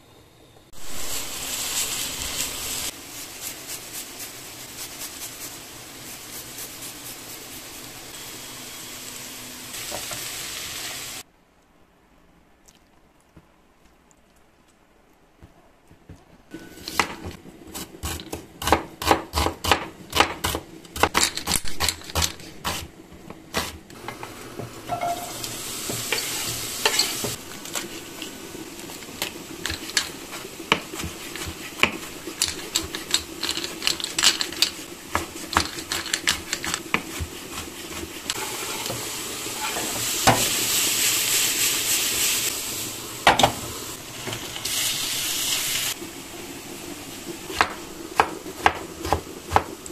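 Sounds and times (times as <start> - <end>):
food sizzling in a frying pan: 0.7 - 11.3, 23.5 - 49.9.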